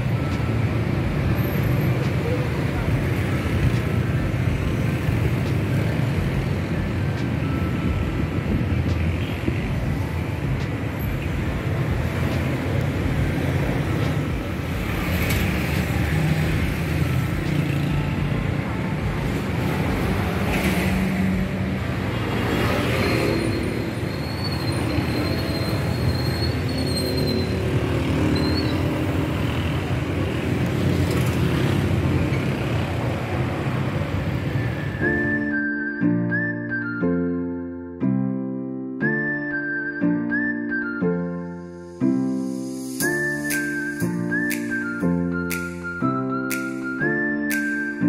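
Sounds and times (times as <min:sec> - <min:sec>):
traffic rumble: 0:00.0 - 0:35.4
cars passing: 0:00.0 - 0:35.9.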